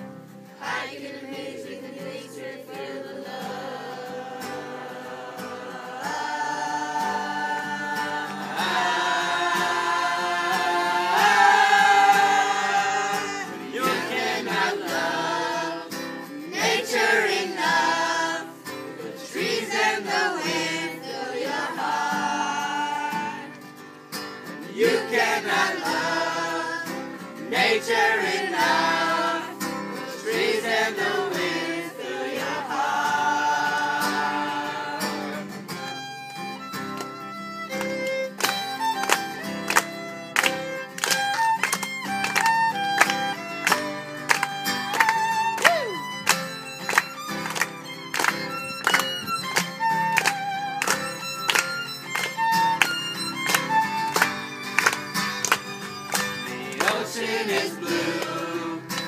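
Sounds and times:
acoustic guitar: 0.0s - 59.0s
boys singing together: 0.6s - 23.5s, 24.7s - 35.4s, 56.8s - 59.0s.

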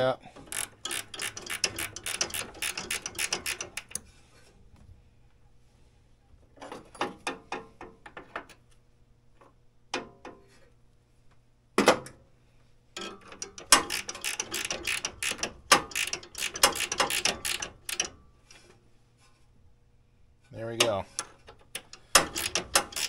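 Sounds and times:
ratchet wrench clicking: 0.4s - 4.0s, 13.4s - 18.1s, 21.2s - 23.0s.

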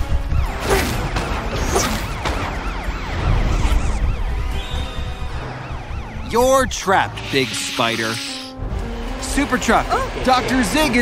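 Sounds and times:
cartoon siren wailing: 0.2s - 8.2s.

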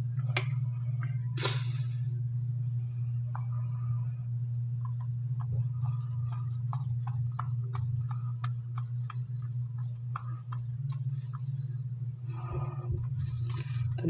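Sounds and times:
steady low hum: 0.0s - 14.0s
paintbrush stroking on a wall: 4.9s - 11.6s.

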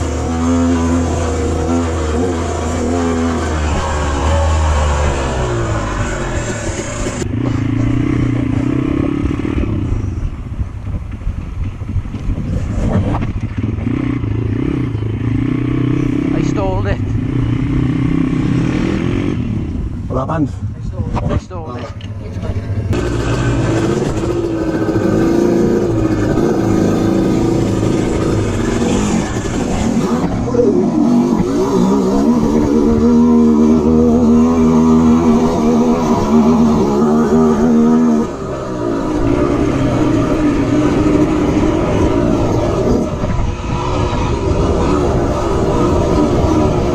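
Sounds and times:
dirt bike engine running: 0.0s - 20.0s, 22.4s - 46.9s
motorbike engine running: 22.9s - 43.5s.

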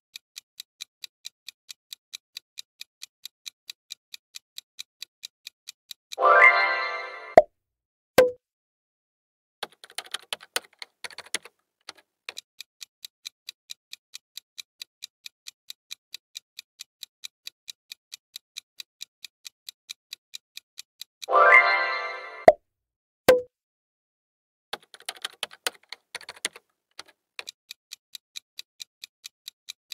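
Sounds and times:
clock ticking: 0.1s - 6.7s, 9.6s - 21.8s, 24.8s - 29.9s
irregular clicks: 9.6s - 21.4s, 24.7s - 29.9s.

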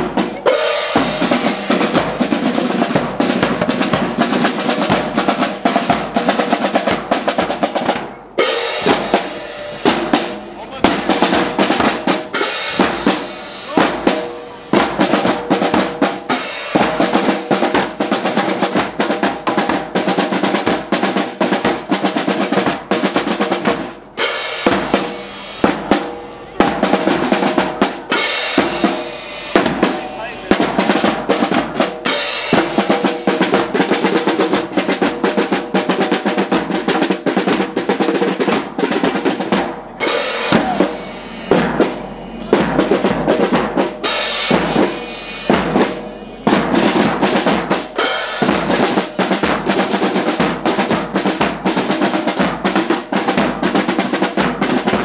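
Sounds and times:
marching drum corps cadence: 0.0s - 55.0s
rapid snare drum rolls: 0.0s - 55.0s
steady bass drum beats: 0.0s - 55.0s
hand cymbals: 24.2s - 34.5s, 44.0s - 46.7s.

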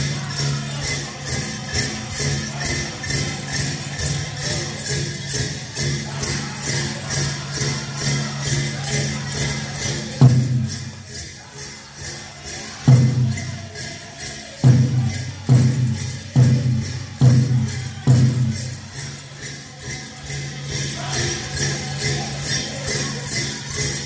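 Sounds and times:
jingling bells: 0.0s - 24.0s
steady drumbeat: 10.2s - 11.0s, 12.8s - 19.0s
big drum hard beats: 12.9s - 13.7s, 14.6s - 18.9s.

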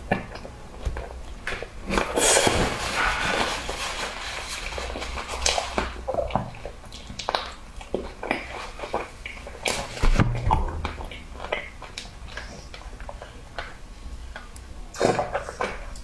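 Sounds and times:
wet chewing: 4.6s - 16.0s.

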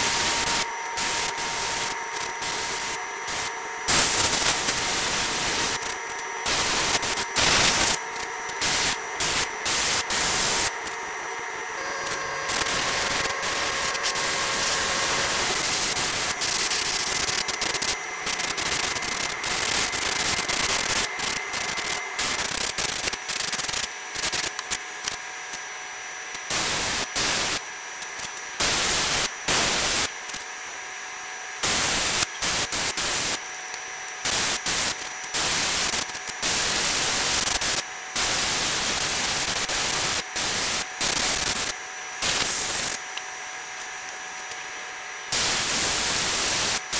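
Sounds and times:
airbrush spraying hiss: 0.0s - 11.0s, 11.8s - 24.4s.

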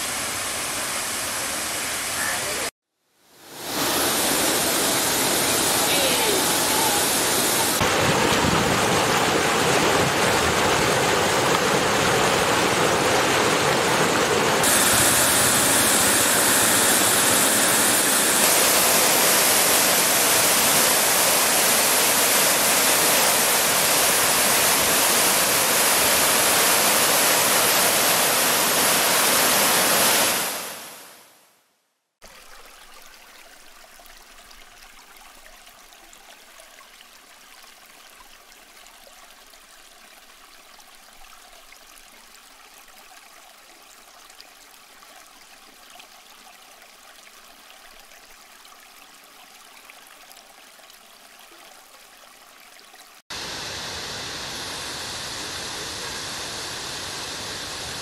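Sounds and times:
waterfall rushing over rock: 3.4s - 31.2s
trickle of shallow water: 32.2s - 53.2s.

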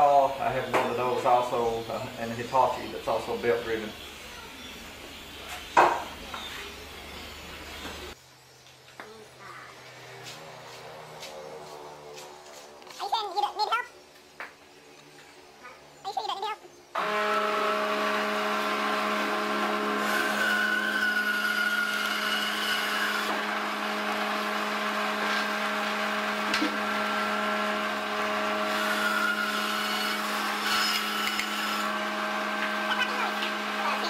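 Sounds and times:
bandsaw motor humming: 17.0s - 34.0s
saw blade cutting wood: 17.0s - 34.0s.

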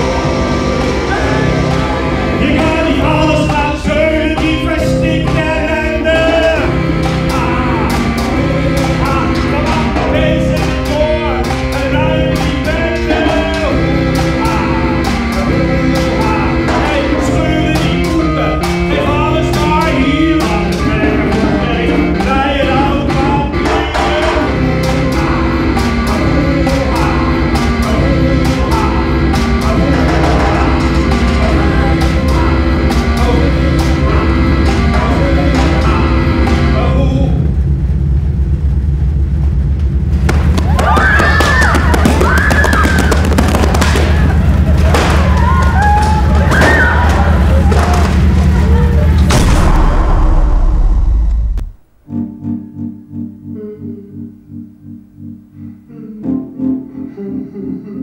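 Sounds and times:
driving beat: 0.0s - 37.5s, 40.1s - 52.1s
bass line: 0.0s - 56.3s
man singing into microphone: 1.1s - 37.4s, 53.5s - 54.4s, 55.8s - 58.0s.

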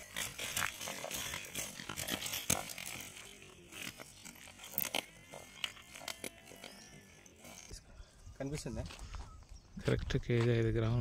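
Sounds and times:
fish flopping on twigs and leaves: 0.0s - 7.7s.

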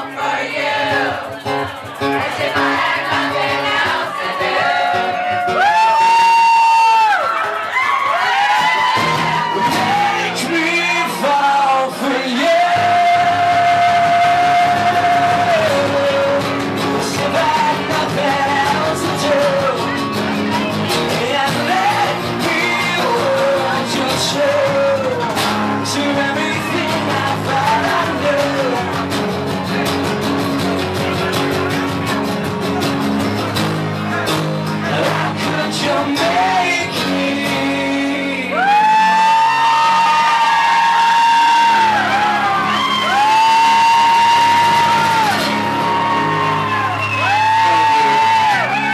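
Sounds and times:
acoustic and electric guitars: 0.0s - 48.9s
man singing: 9.4s - 29.2s, 34.7s - 40.3s, 47.2s - 48.9s.

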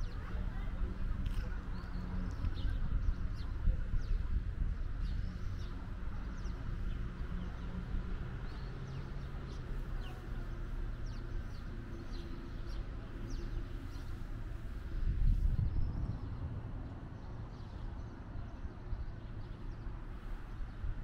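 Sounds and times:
steady low rumble: 0.0s - 21.0s
small birds chirping: 5.0s - 16.4s.

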